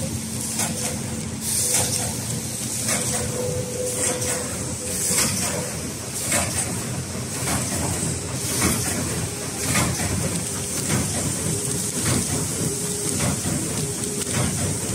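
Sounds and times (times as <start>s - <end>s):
machine hum with hiss: 0.0s - 14.9s.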